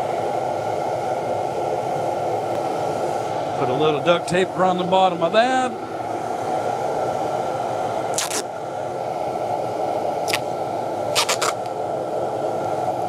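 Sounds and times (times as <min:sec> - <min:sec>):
steady rushing background noise: 0:00.9 - 0:13.0
duct tape ripping: 0:08.2 - 0:08.4, 0:11.2 - 0:11.7.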